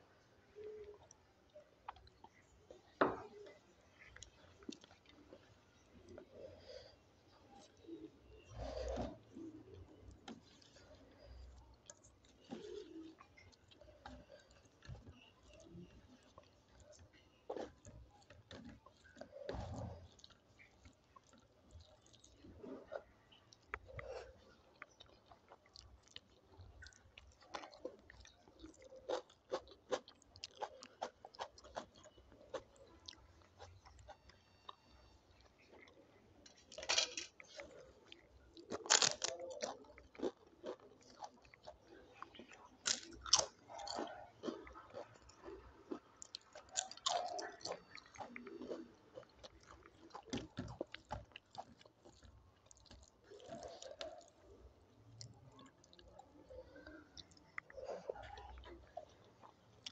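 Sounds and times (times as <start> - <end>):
wet chewing: 0.6 - 59.9
crisp crunching bites: 38.6 - 41.3.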